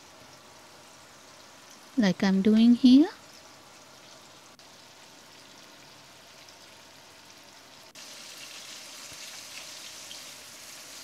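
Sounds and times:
fish sizzling in a frying pan: 3.2 - 11.0.

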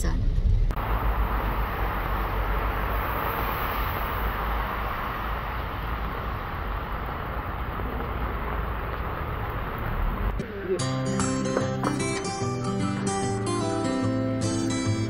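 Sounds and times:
low rumble: 0.0 - 10.5
rain falling on street: 0.7 - 12.4.

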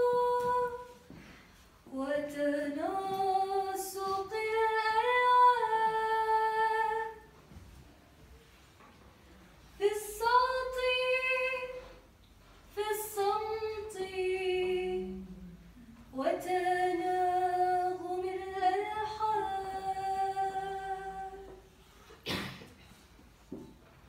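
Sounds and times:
woman singing a slow hymn: 0.0 - 1.2, 1.9 - 7.3, 9.8 - 12.0, 12.7 - 21.6.

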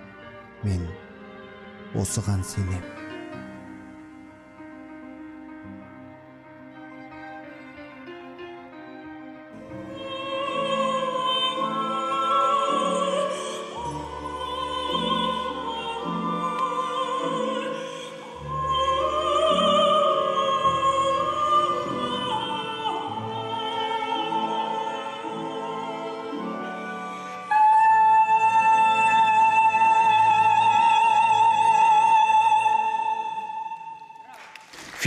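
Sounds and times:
symphony orchestra: 0.0 - 35.0
woman singing operatically: 9.8 - 34.2.

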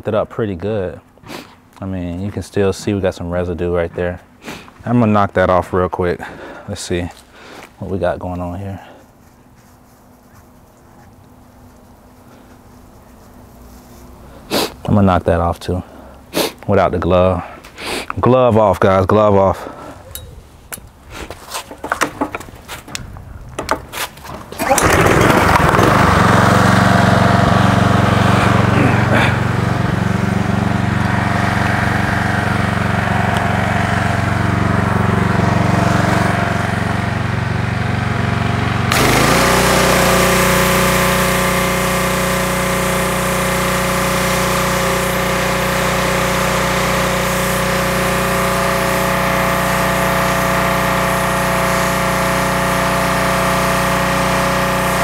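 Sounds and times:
pressure washer engine running: 24.6 - 55.0
water jet hissing: 38.9 - 55.0.

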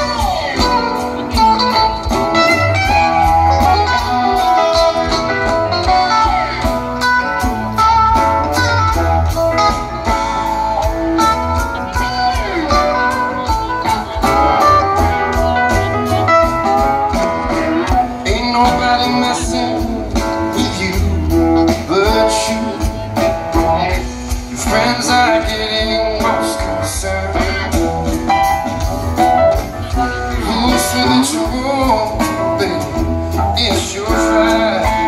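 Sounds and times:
man singing: 0.0 - 7.8, 11.6 - 35.0
drums and bass: 0.0 - 35.0
electric guitar: 0.0 - 35.0.

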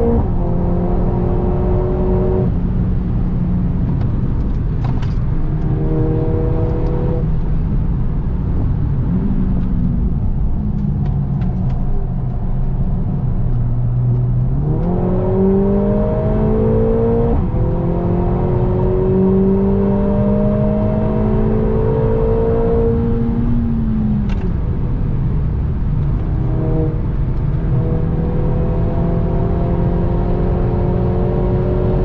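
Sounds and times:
car engine accelerating: 0.0 - 32.0
road rumble: 0.0 - 32.0.

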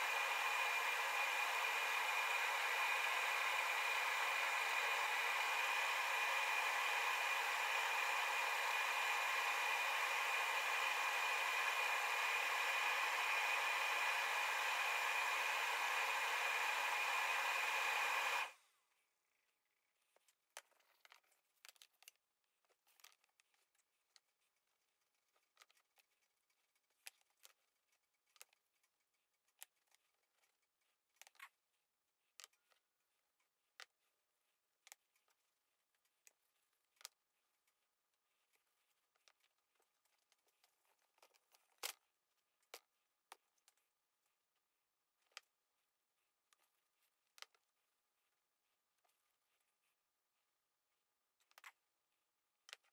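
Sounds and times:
loud fan hiss: 0.0 - 18.5.

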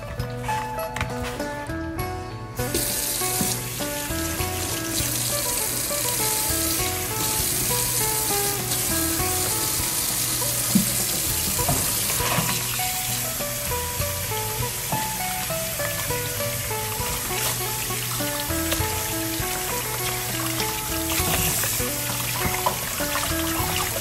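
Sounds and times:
background music: 0.0 - 24.0
tap water running into bowl: 2.6 - 24.0
water splashes: 15.1 - 24.0.

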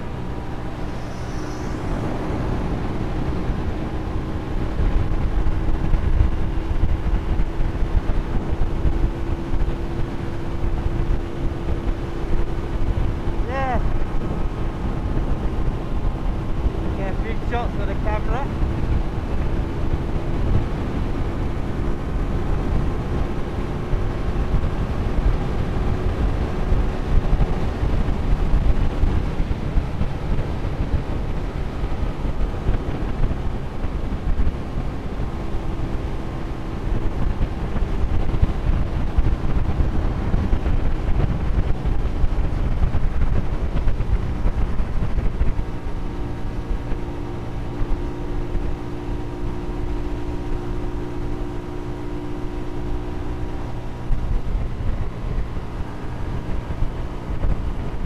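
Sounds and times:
motorcycle engine cruising: 0.0 - 58.0
wind buffeting microphone: 0.0 - 58.0.

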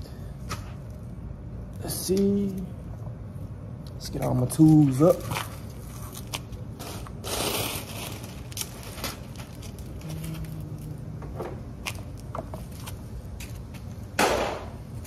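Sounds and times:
scraping rustle: 4.7 - 10.9.

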